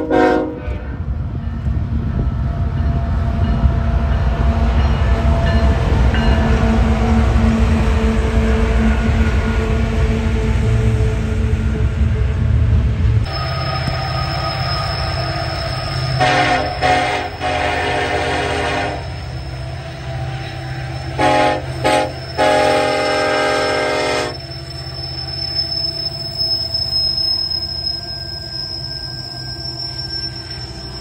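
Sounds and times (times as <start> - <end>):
locomotive horn blasts: 0.0 - 1.0, 16.1 - 19.2, 21.1 - 24.4
diesel locomotives rumbling: 0.0 - 31.0.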